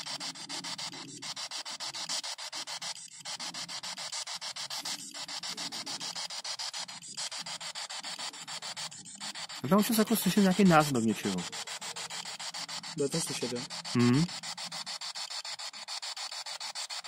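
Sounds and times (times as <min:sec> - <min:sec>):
pulsing radio static: 0:02.6 - 0:14.5.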